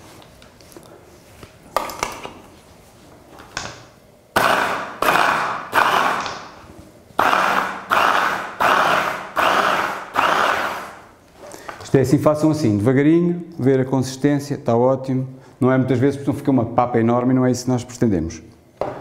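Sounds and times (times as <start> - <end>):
hand blender chopping bursts: 4.3 - 6.6, 7.2 - 11.1
blender clicks: 4.4 - 6.5, 7.2 - 11.0.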